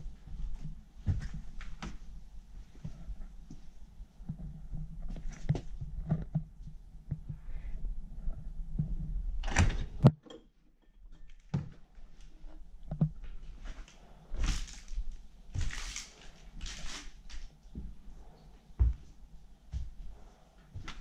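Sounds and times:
footsteps crunching over debris: 13.4s - 17.4s.

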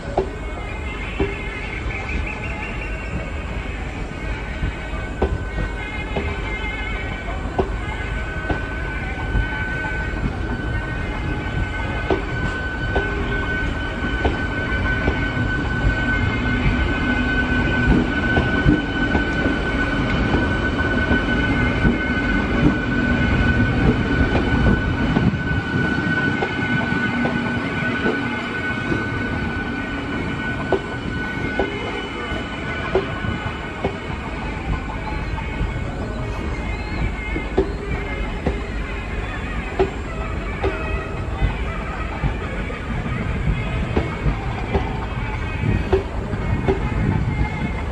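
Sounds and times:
high whine: 0.0s - 47.9s
train wheels rumbling on rails: 0.0s - 47.9s.

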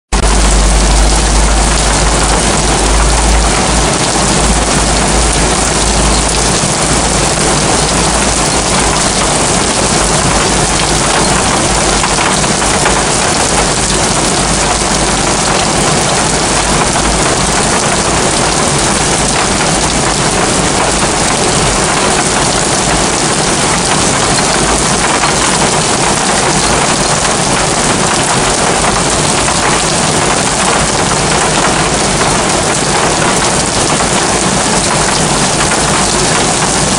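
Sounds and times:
heavy rain on rooftops: 0.1s - 36.9s
low rumble: 0.2s - 21.4s.

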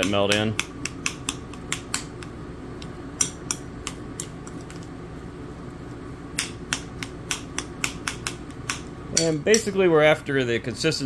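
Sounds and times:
air conditioner hum: 0.0s - 11.0s
metal spoon clinking against a bowl: 9.1s - 9.8s.

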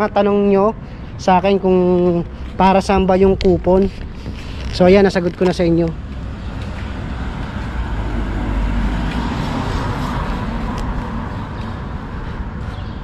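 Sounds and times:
car driving past: 6.4s - 12.8s.

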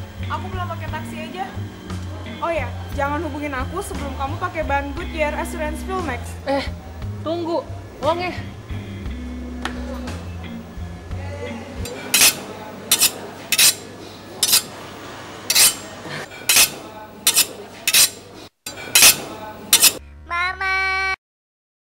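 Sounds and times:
dishes and cutlery clattering: 11.8s - 14.7s, 15.5s - 20.0s.

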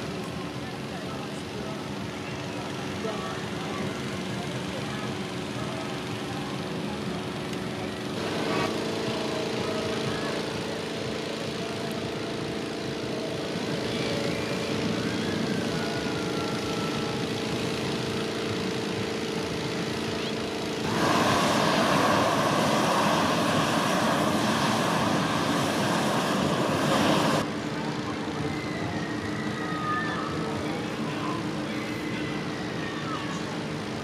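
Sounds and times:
inflator fan humming: 0.0s - 34.0s
propane burner rushing: 3.4s - 27.6s.

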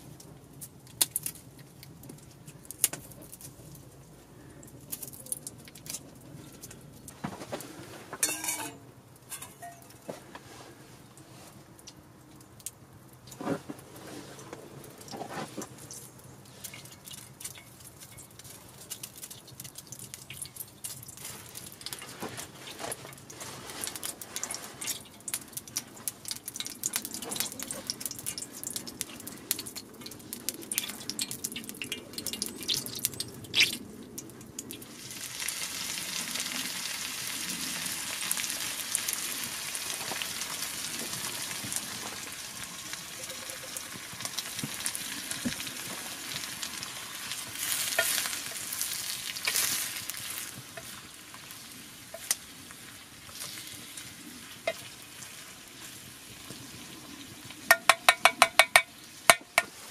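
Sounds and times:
crackling and popping oil: 0.0s - 59.9s
stirring scrapes in a pan: 21.2s - 25.1s, 47.6s - 50.9s
food sizzling in a pan: 34.9s - 59.9s.

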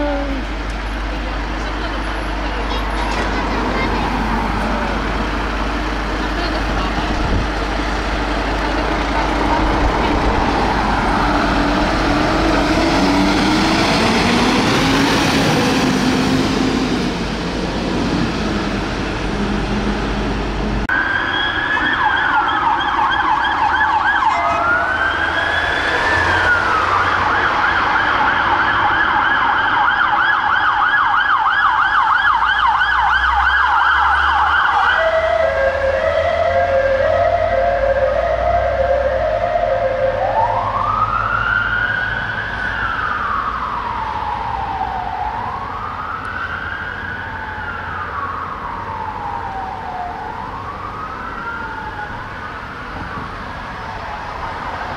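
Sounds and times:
fire engine diesel engine running: 0.0s - 21.2s
police siren wailing and yelping: 20.9s - 54.9s.

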